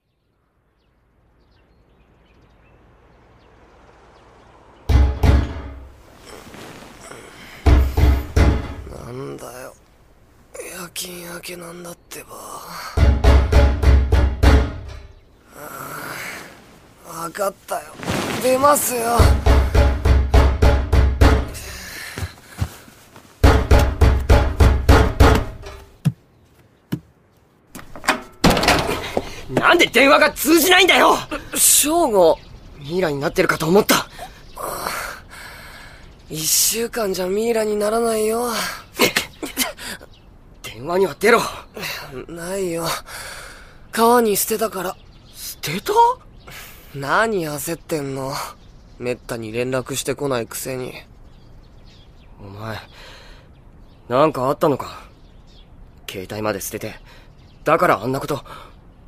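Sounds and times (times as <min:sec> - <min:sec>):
loud knocking on a door: 0:04.9 - 0:05.7, 0:07.7 - 0:08.9, 0:13.0 - 0:15.0, 0:19.2 - 0:21.6, 0:23.4 - 0:25.6.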